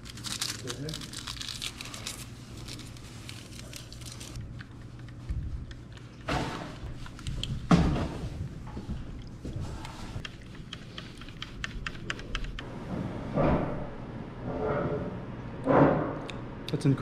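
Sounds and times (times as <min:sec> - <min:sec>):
stir stick stirring coffee: 0:09.2 - 0:12.6.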